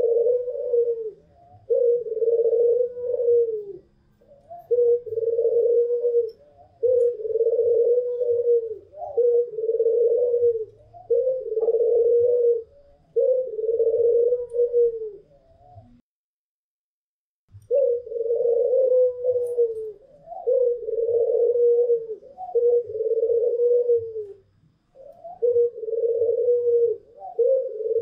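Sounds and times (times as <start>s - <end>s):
doves cooing: 0.0s - 16.0s, 17.7s - 28.0s.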